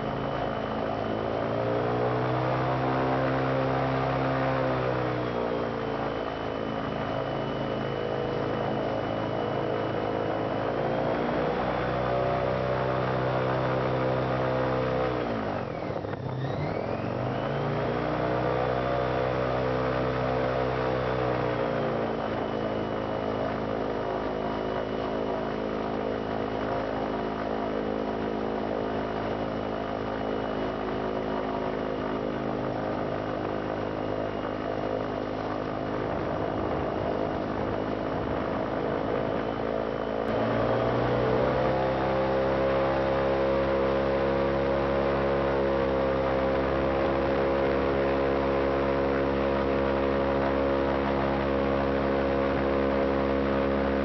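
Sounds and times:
airboat engine and propeller: 0.0s - 54.0s.

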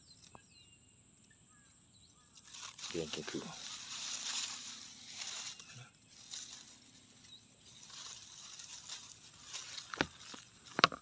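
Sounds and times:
grass stalks rustling: 2.2s - 11.0s
stalk snapping: 2.4s - 6.8s, 7.7s - 11.0s.

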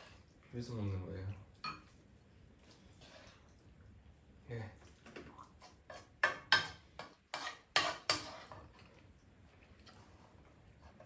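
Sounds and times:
spoons scraping pan and bowls: 0.0s - 0.4s, 2.9s - 3.5s, 5.2s - 11.0s.

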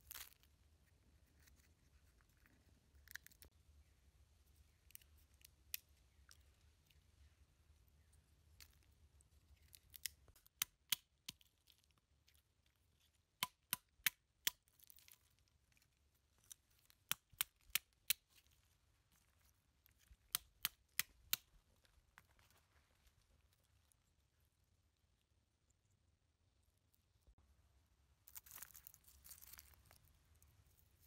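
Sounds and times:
walnut shells cracking: 28.3s - 30.0s.

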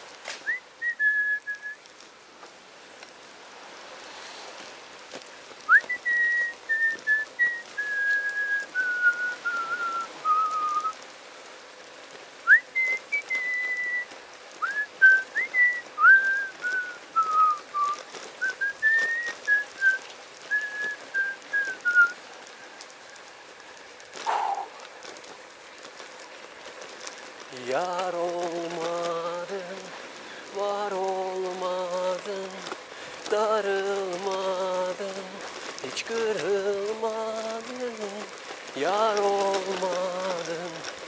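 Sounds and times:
person whistling a tune: 0.4s - 1.8s, 5.7s - 11.0s, 12.4s - 22.2s.

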